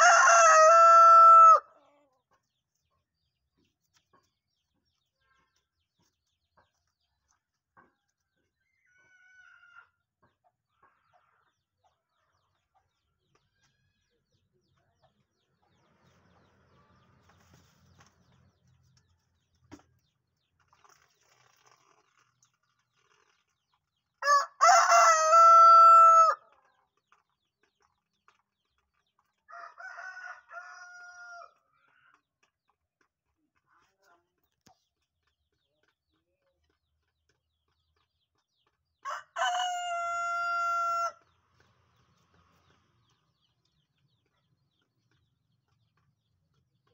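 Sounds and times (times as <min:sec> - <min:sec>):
rooster crowing: 0:00.0 - 0:01.6, 0:24.2 - 0:26.4, 0:39.1 - 0:41.2.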